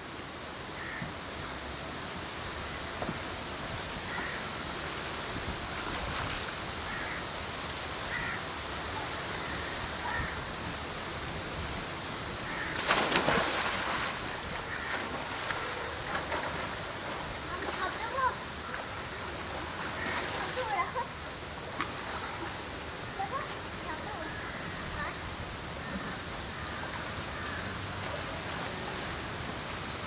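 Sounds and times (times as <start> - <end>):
water splash: 12.5 - 18.3
pool water sloshing: 12.6 - 24.1.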